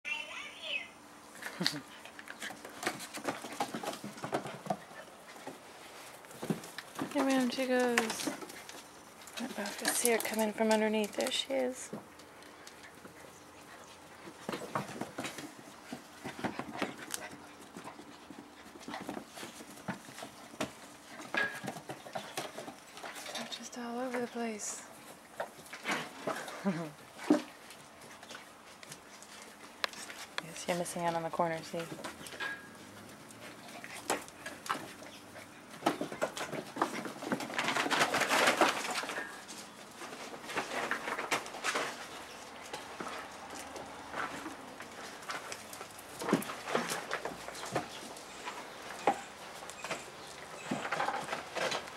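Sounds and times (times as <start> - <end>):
puppies scuffling: 1.3 - 51.9
puppies panting: 12.1 - 23.4, 31.7 - 38.3.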